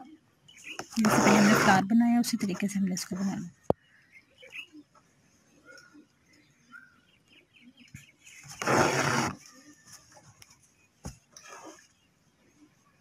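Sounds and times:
thread rasping through cloth: 0:00.8 - 0:01.8, 0:08.5 - 0:09.4
faint bird calls: 0:03.7 - 0:10.2.

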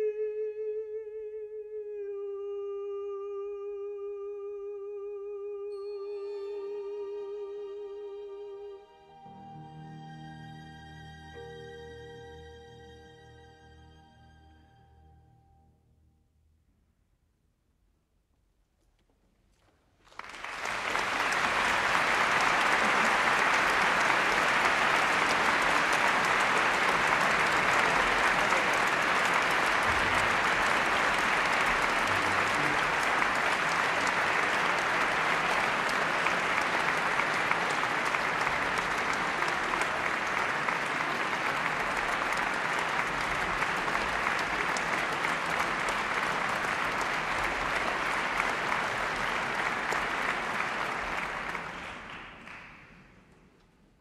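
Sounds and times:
audience applauding: 0:20.0 - 0:53.4.

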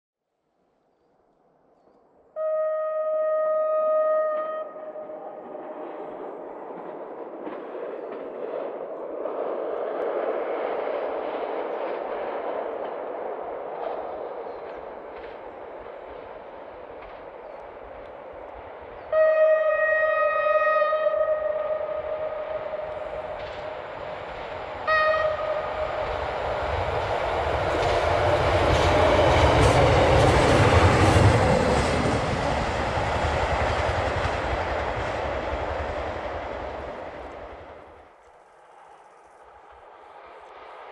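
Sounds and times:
train engine rumble: 0:01.6 - 0:40.9
train horn blast: 0:02.4 - 0:05.4, 0:19.1 - 0:22.9, 0:24.8 - 0:26.0.

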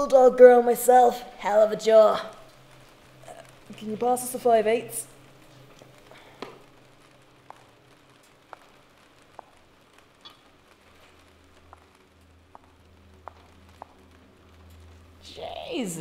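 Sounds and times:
high heels clicking on concrete: 0:08.5 - 0:09.6, 0:11.6 - 0:11.9, 0:12.5 - 0:14.0.

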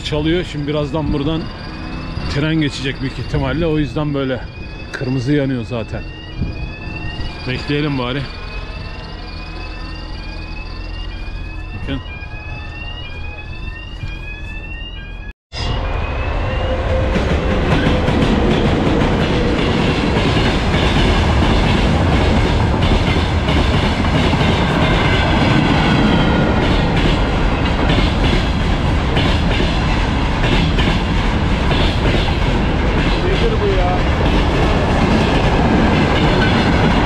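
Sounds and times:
level-crossing alarm tones: 0:00.0 - 0:37.0
train passing rumble: 0:00.0 - 0:37.0
train wheel clacks: 0:17.2 - 0:37.0.

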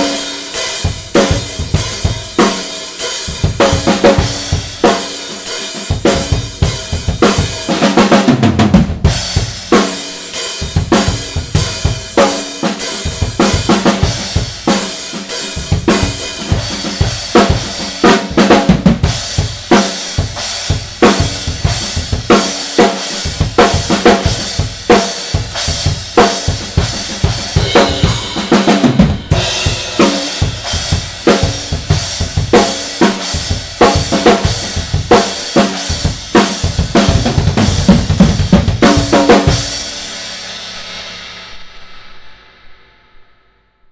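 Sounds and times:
drum kit groove: 0:00.0 - 0:42.1
effects crash cymbal hits: 0:27.2 - 0:31.7, 0:39.4 - 0:43.5.

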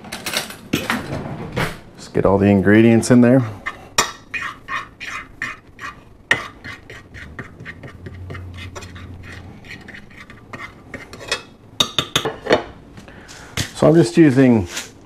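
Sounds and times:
fork scraping and tapping dish: 0:03.6 - 0:12.6.

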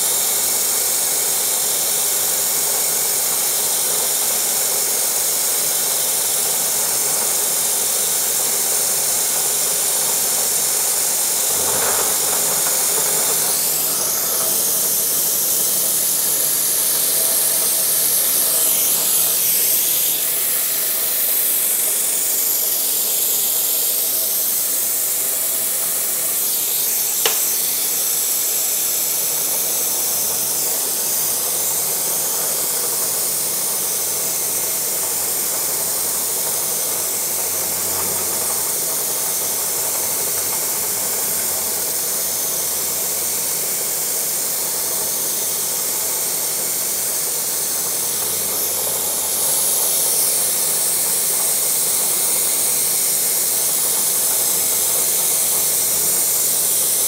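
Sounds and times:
coolant mist hissing: 0:00.0 - 0:57.0
milling machine cutting metal: 0:00.0 - 0:57.0
sharp click: 0:27.2 - 0:27.6.

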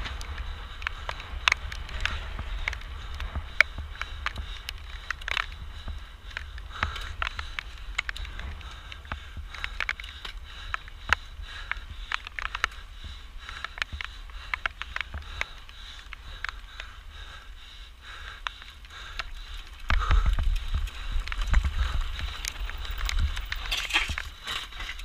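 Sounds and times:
rumble of tyres and wind: 0:00.0 - 0:25.0
bike frame and chain clattering: 0:20.2 - 0:25.0.

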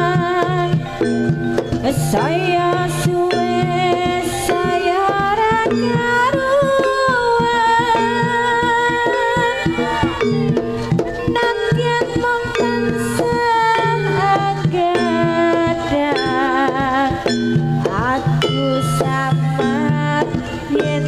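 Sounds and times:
gamelan music: 0:00.0 - 0:21.0
hand drum strokes: 0:00.0 - 0:21.0.

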